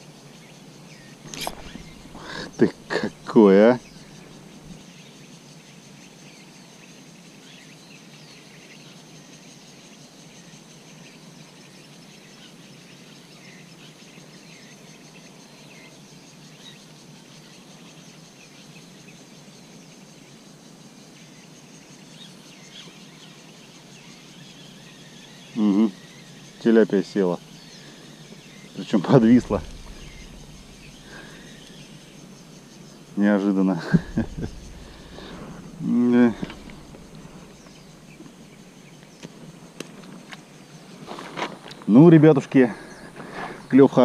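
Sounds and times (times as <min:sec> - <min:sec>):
low outdoor hum: 0:00.0 - 0:08.4, 0:21.1 - 0:44.0
faint bird chirps: 0:00.0 - 0:41.0, 0:41.7 - 0:44.0
high-pitched insect trill: 0:00.0 - 0:44.0.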